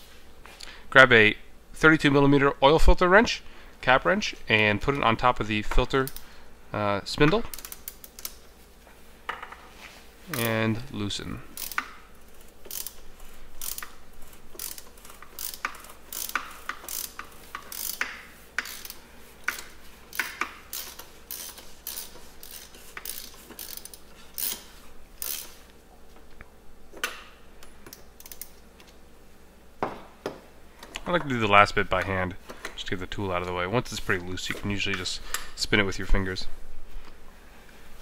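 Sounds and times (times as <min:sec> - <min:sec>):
socket ratchet clicking: 0:07.5 - 0:08.4, 0:11.6 - 0:25.6, 0:27.0 - 0:28.9.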